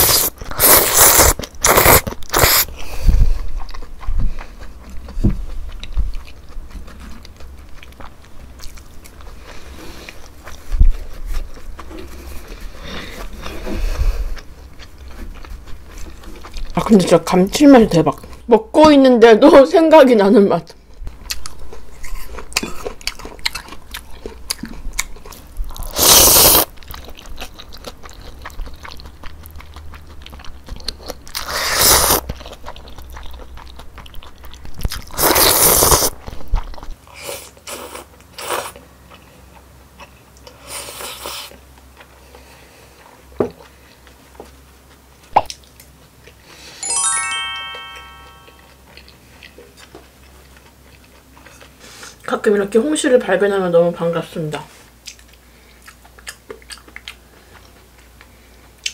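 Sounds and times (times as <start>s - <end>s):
noodles slurped: 0.0s - 2.8s, 25.8s - 26.8s, 31.2s - 32.3s, 35.0s - 36.2s
chewing and mouth clicks: 0.0s - 13.4s, 14.3s - 17.4s, 20.6s - 37.0s, 37.6s - 46.5s, 48.6s - 52.3s, 55.0s - 58.9s
falling chime-like notes: 46.8s - 48.7s.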